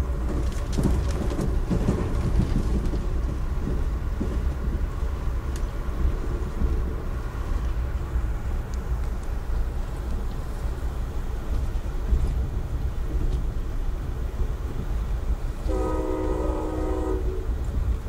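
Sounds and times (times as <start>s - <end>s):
train rumbling from inside coach: 0.0s - 18.0s
sharp clicks and rattles: 0.3s - 4.9s.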